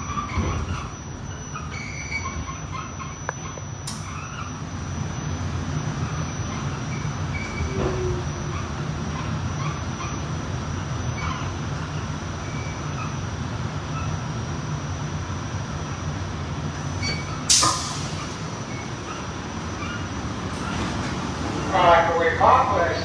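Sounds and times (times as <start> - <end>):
short squeal: 0.0 - 4.6, 6.2 - 8.7, 17.0 - 20.9
high whine: 0.0 - 11.4
subway train rumble: 0.0 - 23.0.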